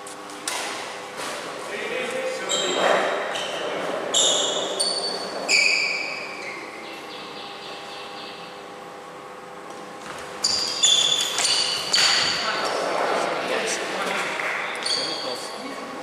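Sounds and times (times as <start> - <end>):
shoes squeaking on floor: 2.4 - 6.7, 10.0 - 12.8, 14.6 - 15.5.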